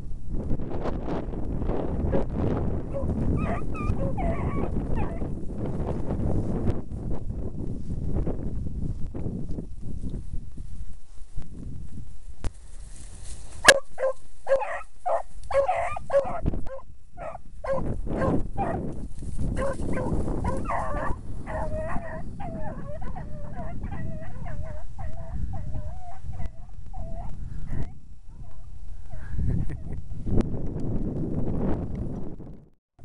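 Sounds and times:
dogs baying: 2.9 - 5.2, 13.6 - 18.8, 19.6 - 28.7
low rustling: 9.6 - 16.3.

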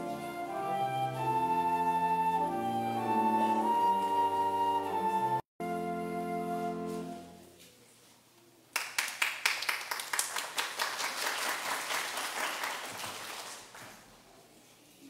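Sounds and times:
crowd applauding: 8.8 - 14.0.

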